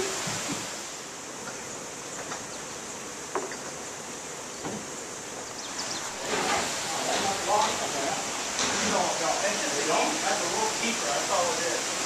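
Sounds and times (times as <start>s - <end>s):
running water rushing: 0.0s - 12.0s
faint knocks: 4.6s - 4.9s.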